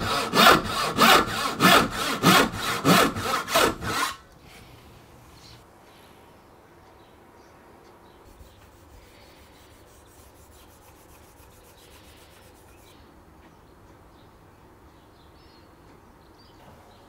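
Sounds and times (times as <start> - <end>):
hands rubbing wooden handle: 8.3 - 12.9.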